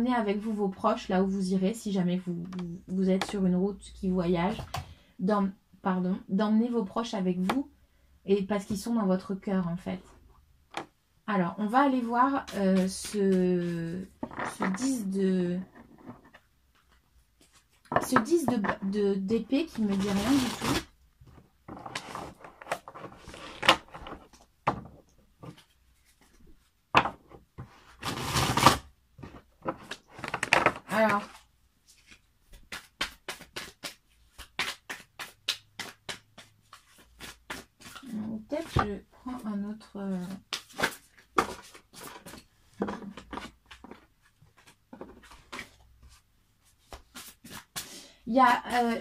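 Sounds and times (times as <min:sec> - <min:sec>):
cards being shuffled by hand: 0:12.4 - 0:15.0, 0:28.1 - 0:38.8, 0:40.2 - 0:47.9.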